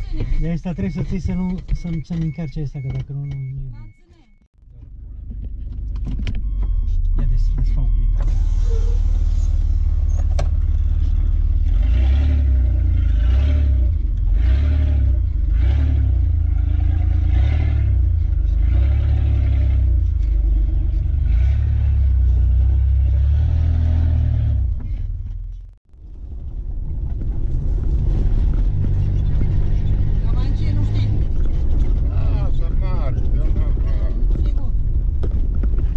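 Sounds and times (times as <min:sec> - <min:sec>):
car engine rumble from inside: 0:00.0 - 0:35.9.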